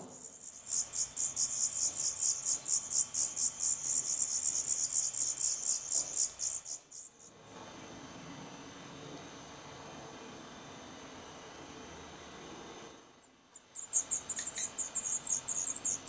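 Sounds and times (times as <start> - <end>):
nestlings begging calls: 0.0 - 7.2, 13.6 - 16.0.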